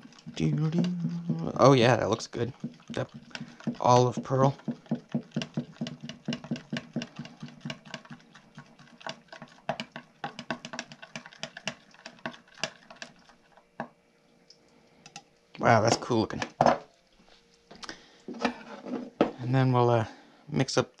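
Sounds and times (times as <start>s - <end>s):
stir stick scraping a cup: 0.0s - 13.6s.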